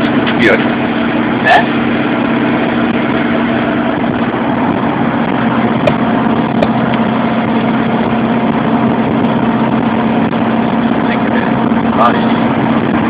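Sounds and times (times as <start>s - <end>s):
engine and road noise: 0.0s - 13.0s.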